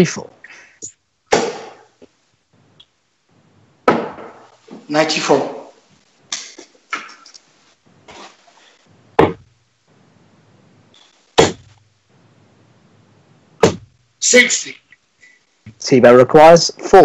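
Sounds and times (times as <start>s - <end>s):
darts thudding into dartboard: 1.3s - 1.9s.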